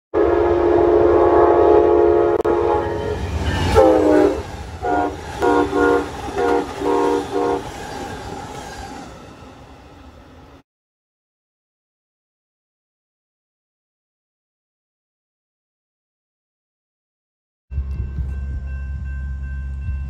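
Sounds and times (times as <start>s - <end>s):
locomotive air horn: 0.2s - 7.7s
train rumble: 0.2s - 10.6s, 17.7s - 20.0s.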